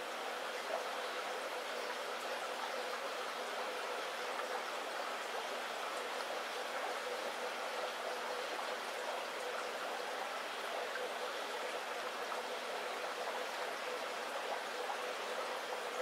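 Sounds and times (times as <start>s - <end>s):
faint steady hum: 0.0s - 16.0s
water trickling: 0.0s - 16.0s
aquarium filters bubbling: 0.1s - 16.0s.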